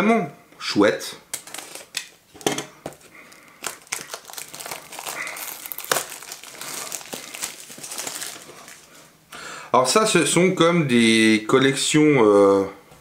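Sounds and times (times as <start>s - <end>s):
cardboard box packaging crinkling: 1.4s - 2.0s, 2.9s - 9.1s.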